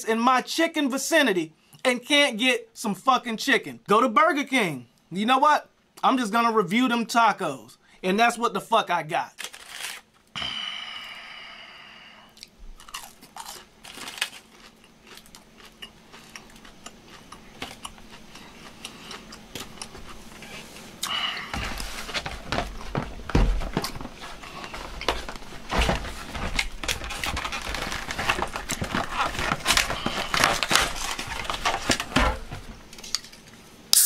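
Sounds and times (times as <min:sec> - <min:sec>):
crunching of taco being chewed: 0:12.3 - 0:22.0
crackling and rustling: 0:21.6 - 0:33.6.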